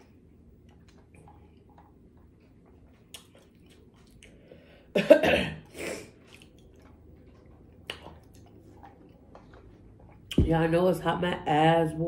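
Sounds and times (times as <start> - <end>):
woman coughing: 4.9 - 6.0.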